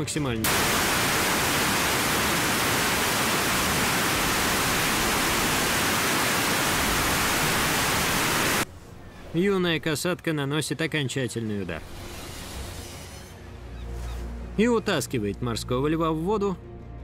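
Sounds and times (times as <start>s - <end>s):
loud static hiss: 0.4s - 8.6s.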